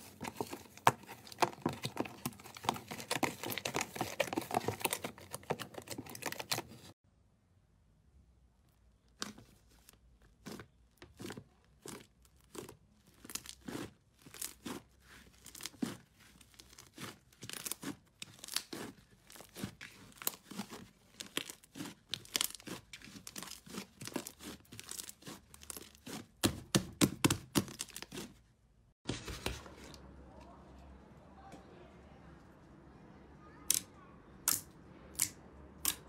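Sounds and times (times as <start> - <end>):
slime crackling and popping: 10.4 - 28.2.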